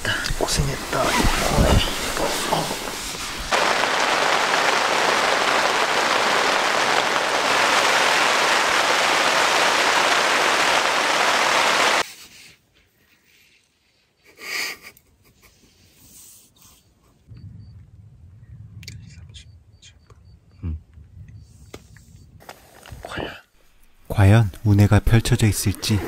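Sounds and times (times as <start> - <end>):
heavy rain on a tent: 0.0 - 12.0.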